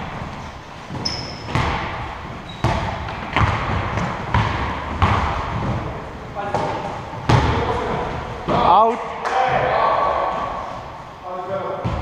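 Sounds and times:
basketball bouncing on gym floor: 0:00.0 - 0:08.8
short high squeak: 0:01.0 - 0:01.5.

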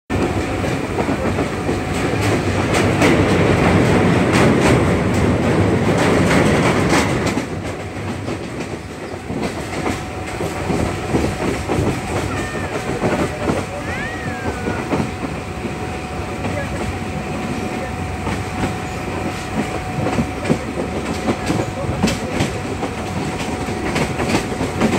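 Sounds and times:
train wheels rumbling on rails: 0:00.1 - 0:24.9
sharp rail clacks: 0:00.2 - 0:15.8, 0:18.2 - 0:24.9.

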